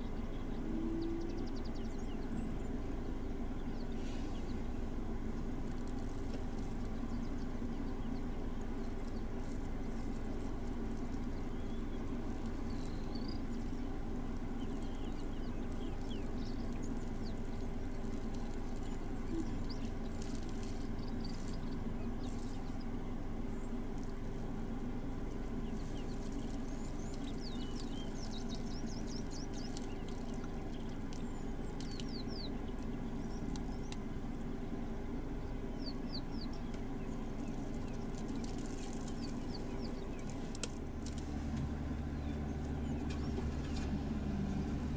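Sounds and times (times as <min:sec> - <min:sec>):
small birds chirping: 0:00.0 - 0:44.9
steady low hum: 0:00.0 - 0:44.9
brief crackles: 0:40.2 - 0:41.8.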